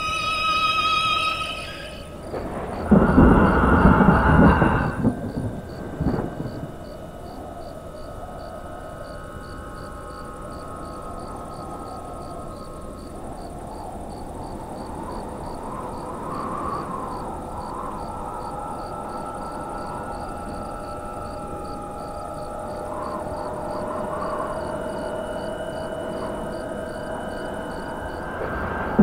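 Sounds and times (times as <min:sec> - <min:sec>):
crickets chirping: 0:00.0 - 0:29.0
steady low hiss: 0:00.0 - 0:29.0.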